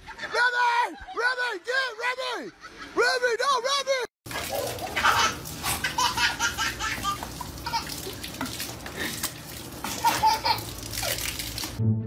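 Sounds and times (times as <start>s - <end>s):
people laughing: 0.0s - 3.2s
water hissing from garden hose: 4.3s - 11.8s.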